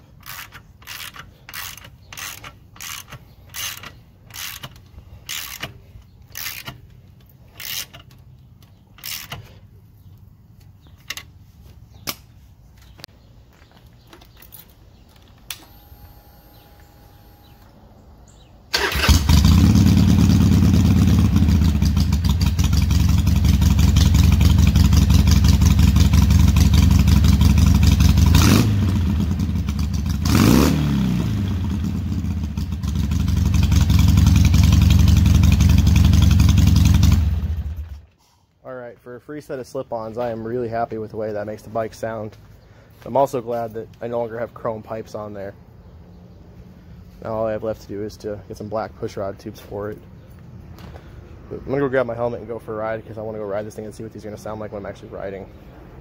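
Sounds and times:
ratchet wrench clicking: 0:00.2 - 0:08.3, 0:08.9 - 0:09.5
motorcycle engine idling loudly: 0:19.3 - 0:28.3, 0:31.6 - 0:37.8.

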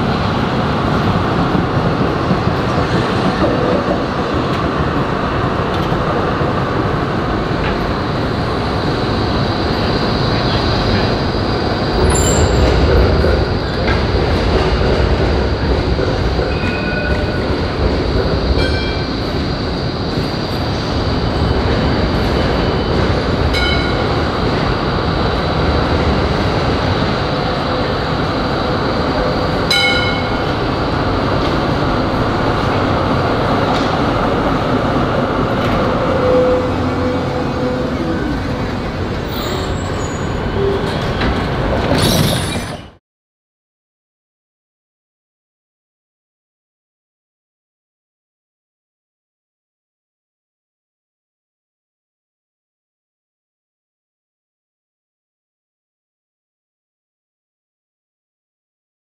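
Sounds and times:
tram wheels rumbling on rail: 0:00.0 - 0:43.0
high-pitched tram squeals: 0:11.9 - 0:13.0, 0:16.4 - 0:17.8, 0:18.6 - 0:19.4, 0:29.7 - 0:30.8, 0:35.6 - 0:43.0.

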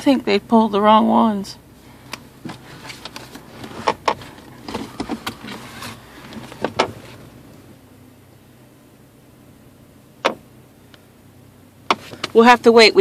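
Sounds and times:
low car cabin hum: 0:00.0 - 0:13.0
soft clicks and rustles: 0:02.1 - 0:07.3.

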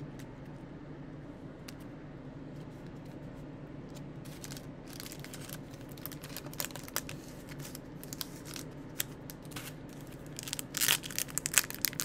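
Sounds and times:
steady low hum: 0:00.0 - 0:12.0
cards and wrapper rustling: 0:04.2 - 0:12.0.

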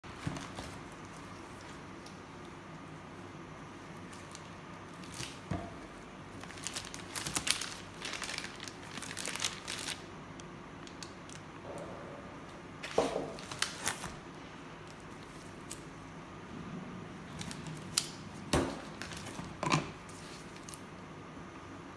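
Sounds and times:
plastic wrapping crinkling: 0:00.0 - 0:03.0, 0:03.8 - 0:11.6, 0:12.8 - 0:15.9, 0:17.3 - 0:20.9.

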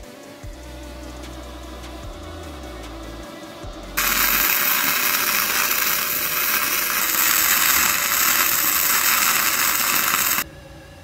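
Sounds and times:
welding arc crackling hiss: 0:04.0 - 0:10.4.

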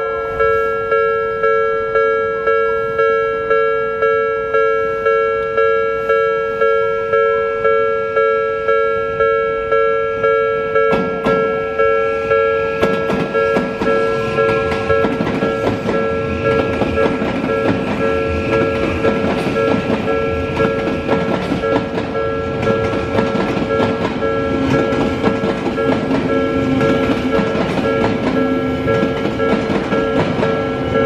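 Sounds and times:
two-tone crossing bell: 0:00.0 - 0:31.0
train wheels rumbling and clattering: 0:10.8 - 0:31.0.

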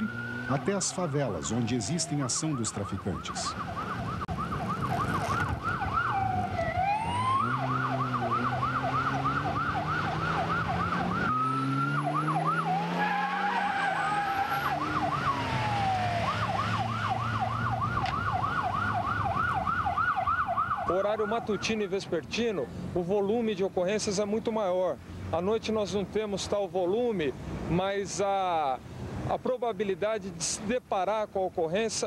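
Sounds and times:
car engine speeding up: 0:00.0 - 0:00.9, 0:03.6 - 0:19.8
police siren yelping and wailing: 0:00.0 - 0:21.9.

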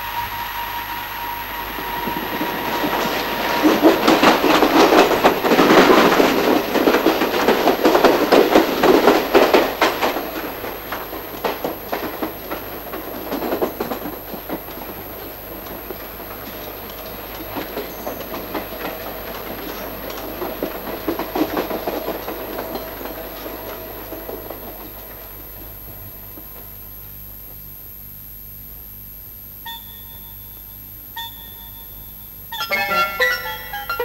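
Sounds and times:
train wheels clattering on rails: 0:00.0 - 0:26.8, 0:31.2 - 0:34.0
train rumble: 0:00.0 - 0:27.6, 0:31.2 - 0:34.0
short pitched notes: 0:32.6 - 0:34.0.

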